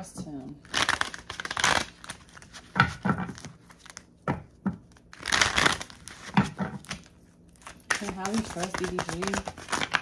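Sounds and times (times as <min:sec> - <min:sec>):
cards shuffling: 0:04.9 - 0:10.0.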